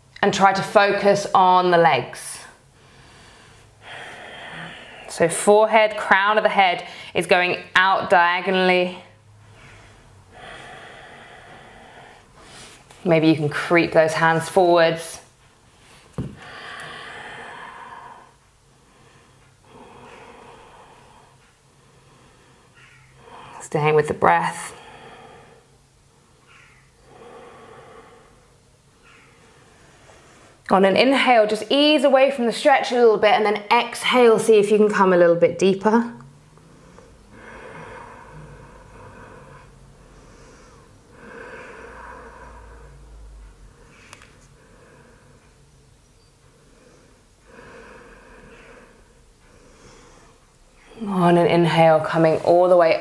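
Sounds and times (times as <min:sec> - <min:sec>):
person breathing: 0:02.7 - 0:05.1, 0:09.2 - 0:13.0, 0:15.9 - 0:23.6, 0:24.7 - 0:25.8, 0:26.9 - 0:30.6, 0:36.6 - 0:45.7, 0:46.4 - 0:51.1.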